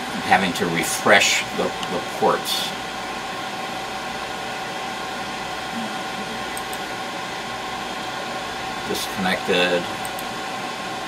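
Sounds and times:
faint constant hum: 0.0 - 11.0
fan noise: 0.0 - 11.0.

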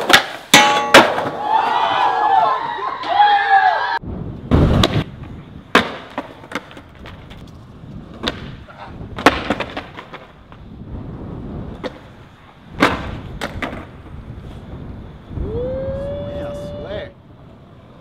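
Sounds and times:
skateboard clacking on concrete: 0.0 - 1.4, 4.8 - 10.7, 11.7 - 14.0
skateboard wheels rolling: 0.0 - 18.0.

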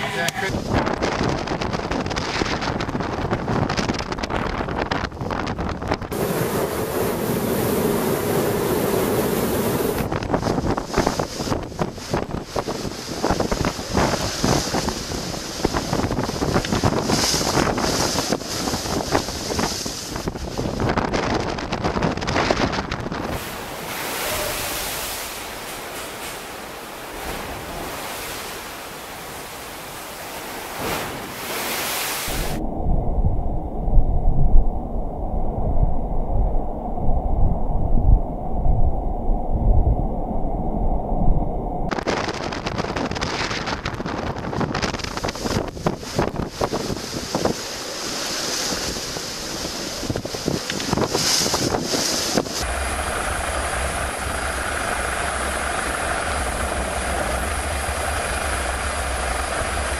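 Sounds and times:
storm waves breaking: 0.0 - 59.9
wind buffeting microphone: 0.0 - 59.9.

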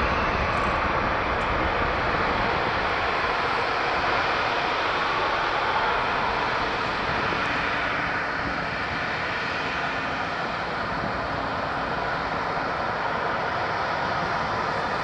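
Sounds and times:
jet engines hissing and rumbling: 0.0 - 15.0.

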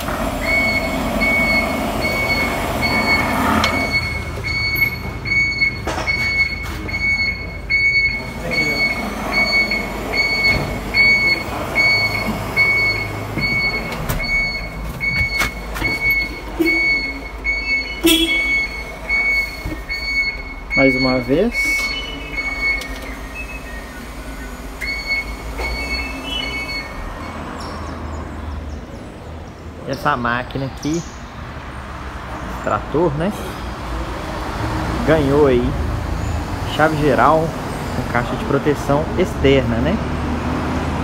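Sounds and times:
tractor electronic beeper: 0.0 - 27.8.

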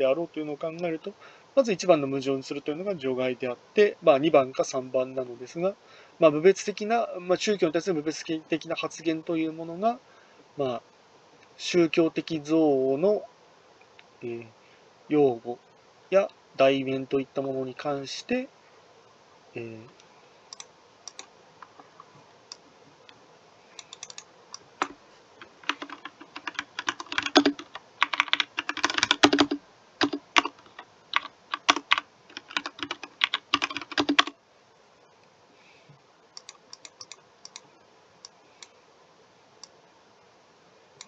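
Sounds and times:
typing on computer keyboard: 23.8 - 24.2, 24.8 - 34.3, 36.4 - 37.6.

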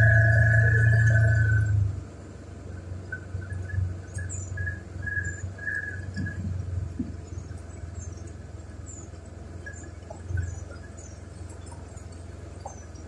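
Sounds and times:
low steady rumble: 0.0 - 13.0
birds chirping: 7.1 - 13.0.

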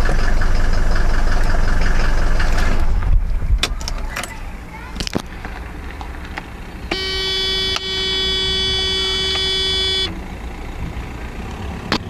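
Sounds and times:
diesel engine idling: 0.0 - 12.0
car horn steady tone: 6.8 - 10.2.

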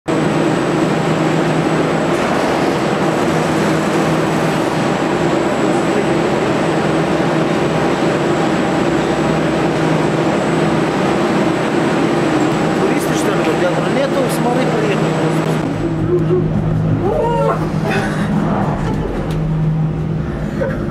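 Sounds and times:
lift machinery humming: 0.1 - 20.9.

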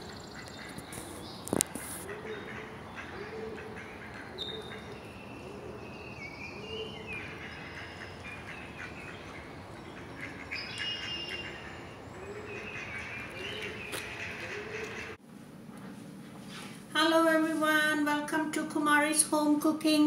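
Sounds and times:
birds chirping and calling: 0.0 - 15.2
outdoor background noise: 0.0 - 20.0.

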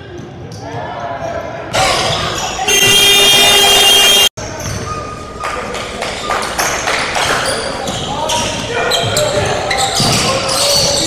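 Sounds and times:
players and spectators voices: 0.0 - 11.0
basketball bouncing: 1.8 - 3.8
scoreboard horn: 2.7 - 4.3.

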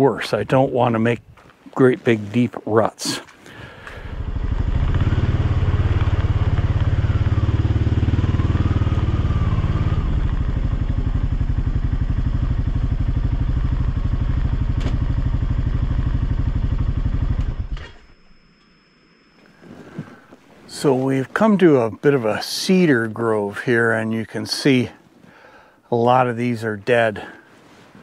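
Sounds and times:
quad bike engine running: 3.7 - 18.0.

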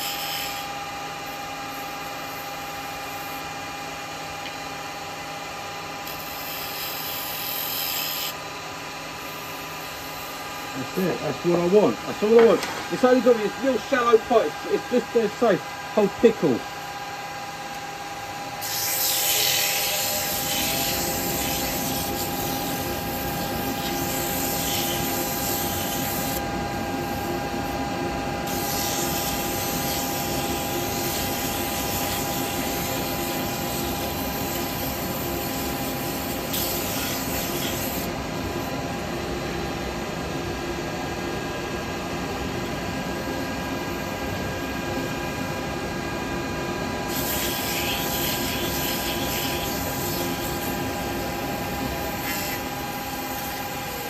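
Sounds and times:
lathe motor whine: 0.0 - 54.0
tool cutting spinning wood: 17.6 - 38.1, 47.0 - 54.0.

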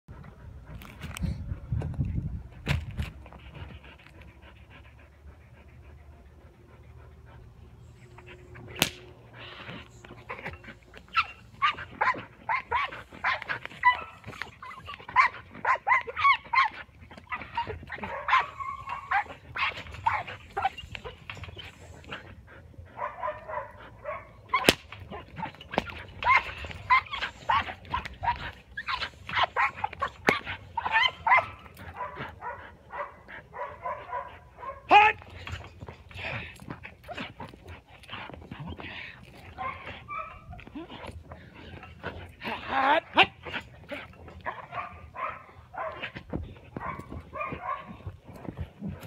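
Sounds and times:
dog whining and yipping: 7.3 - 49.0.

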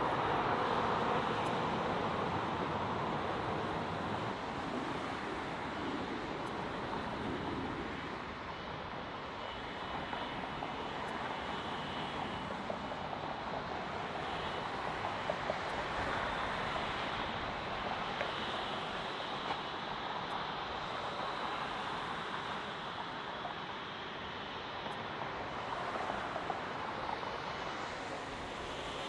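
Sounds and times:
faint high whine: 0.0 - 29.0
jet engines rushing: 0.0 - 29.0.

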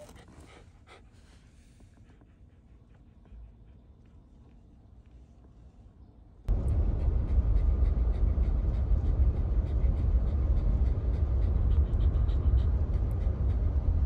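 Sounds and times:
dog panting: 0.0 - 4.9, 6.6 - 14.0
car cabin road rumble: 6.5 - 14.0.

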